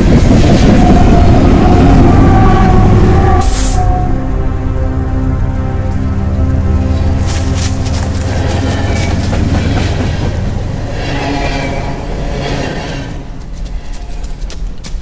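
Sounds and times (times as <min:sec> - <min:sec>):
low sustained drone: 0:00.6 - 0:09.3.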